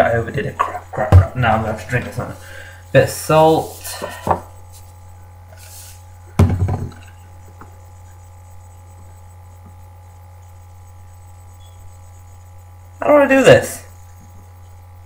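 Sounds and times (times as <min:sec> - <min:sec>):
low electrical hum: 0:00.0 - 0:15.0
dull thump: 0:06.4 - 0:07.0.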